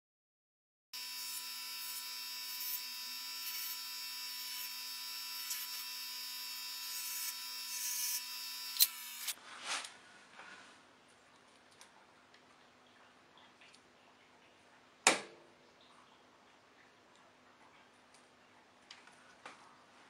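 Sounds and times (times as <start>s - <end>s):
bench grinder motor whining: 1.0s - 9.4s.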